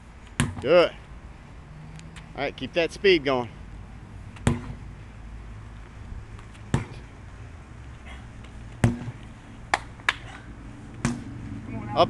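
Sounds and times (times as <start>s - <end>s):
sledgehammer thudding on tyre: 0.4s - 0.7s, 4.4s - 4.8s, 6.7s - 7.0s, 8.8s - 9.2s, 11.0s - 11.4s.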